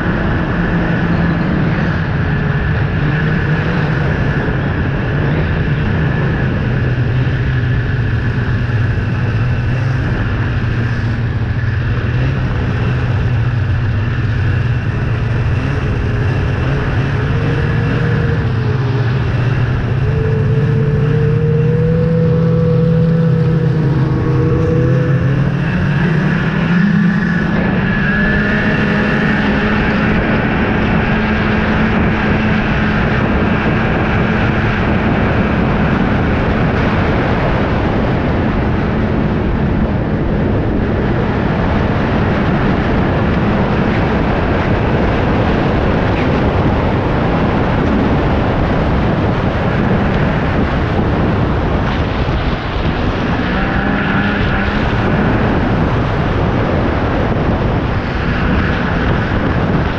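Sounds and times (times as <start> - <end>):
snowmobile engine running: 0.0 - 59.9
snowmobile track noise: 0.0 - 59.9
wind rushing: 0.0 - 59.9.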